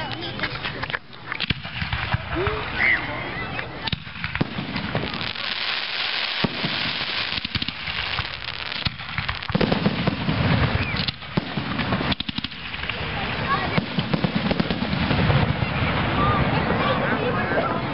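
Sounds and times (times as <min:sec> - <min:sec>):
fireworks crackling: 0:00.0 - 0:17.9
firework shells banging: 0:03.8 - 0:16.1.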